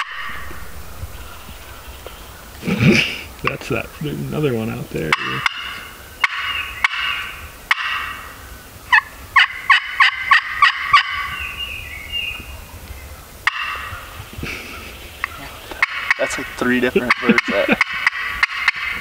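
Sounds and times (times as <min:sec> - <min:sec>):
turkey yelping: 0:00.0 - 0:03.3, 0:05.0 - 0:11.4, 0:13.4 - 0:19.0
turkeys gobbling: 0:00.0 - 0:11.4, 0:13.2 - 0:19.0.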